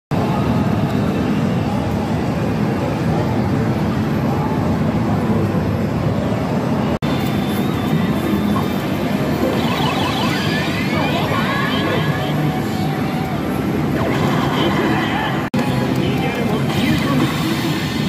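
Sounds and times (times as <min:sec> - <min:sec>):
slot machines din: 0:07.1 - 0:12.7.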